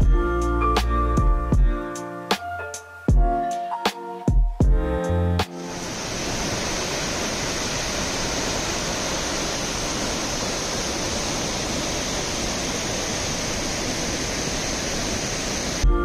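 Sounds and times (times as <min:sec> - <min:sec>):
waterfall rushing onto rocks: 0:05.6 - 0:15.8.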